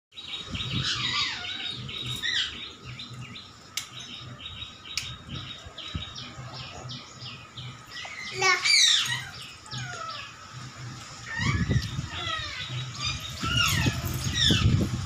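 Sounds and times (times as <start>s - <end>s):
puppies squeaking: 11.2s - 14.7s.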